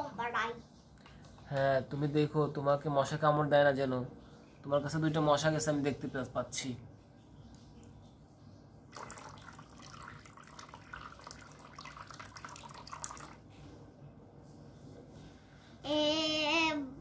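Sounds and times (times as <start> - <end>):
water trickling and splashing: 8.9 - 13.5.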